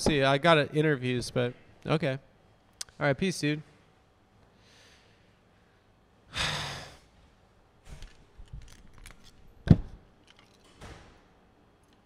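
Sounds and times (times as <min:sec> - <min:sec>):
key and key tag rattling: 0:08.0 - 0:09.5, 0:10.2 - 0:10.8.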